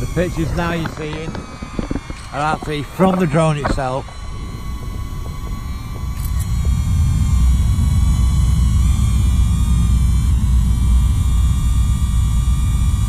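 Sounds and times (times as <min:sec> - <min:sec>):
drone propellers whining: 0:00.0 - 0:13.0
loud low rumble: 0:04.3 - 0:13.0.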